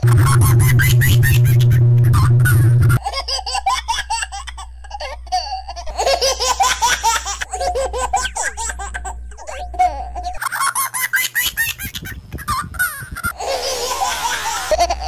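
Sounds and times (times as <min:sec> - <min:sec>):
loud low hum: 0:00.0 - 0:03.0
toddler giggling: 0:00.3 - 0:15.0.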